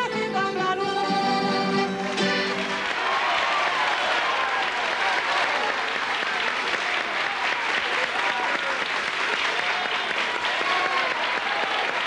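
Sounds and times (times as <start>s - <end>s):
audience clapping: 2.0s - 12.0s
crowd shouts: 2.6s - 12.0s.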